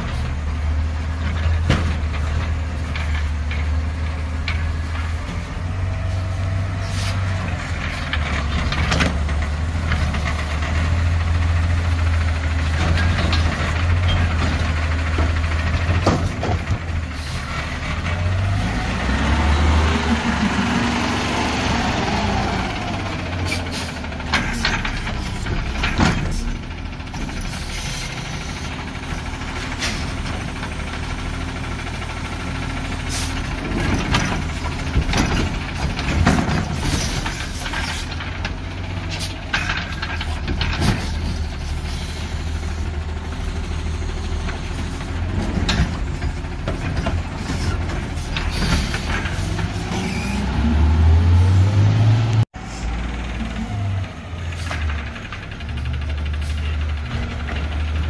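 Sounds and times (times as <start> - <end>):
garbage truck engine rumbling: 0.0 - 58.0
metal clanks and knocks: 1.1 - 5.6, 7.4 - 17.1, 23.4 - 27.6, 33.4 - 42.0, 44.4 - 50.0.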